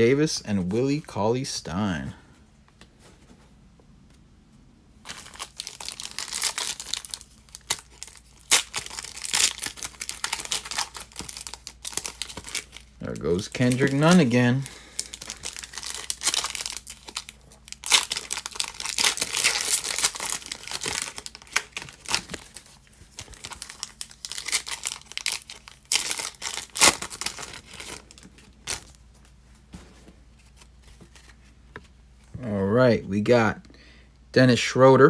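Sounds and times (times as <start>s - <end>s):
foil wrappers crinkling and tearing: 5.0s - 29.0s.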